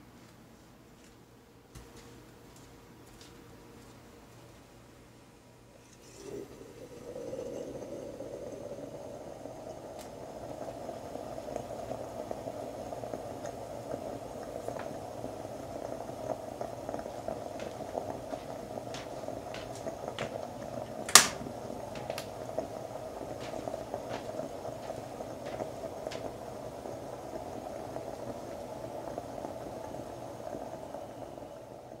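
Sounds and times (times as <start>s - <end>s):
moka pot boiling: 5.3s - 32.0s
stove knob click: 21.1s - 21.4s.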